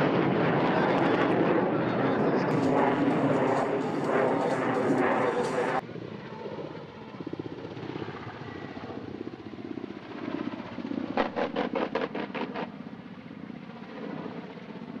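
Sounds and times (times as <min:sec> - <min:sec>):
helicopter rotors throbbing: 0:00.0 - 0:15.0
sharp pops of flares firing: 0:02.5 - 0:05.8.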